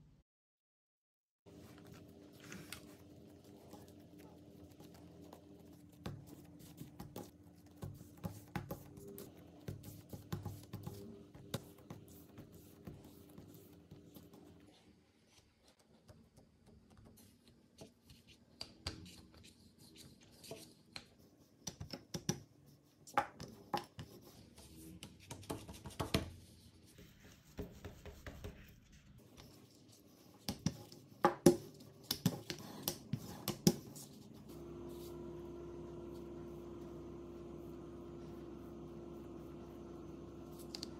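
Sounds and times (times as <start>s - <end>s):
hands rubbing and patting dough: 1.5s - 35.2s, 37.4s - 40.9s
steady hum: 33.8s - 40.9s.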